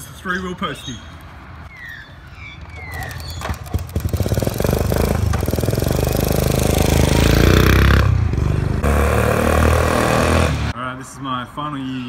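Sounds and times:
motorcycle engine revving: 3.4s - 10.7s.

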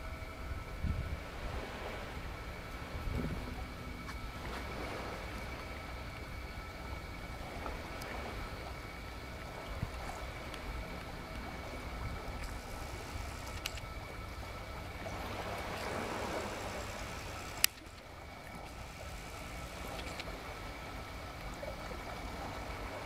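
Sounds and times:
low rumble: 0.0s - 23.0s
soft hiss: 0.0s - 23.0s
faint clicks: 12.4s - 14.0s, 17.4s - 18.8s, 19.6s - 20.4s.

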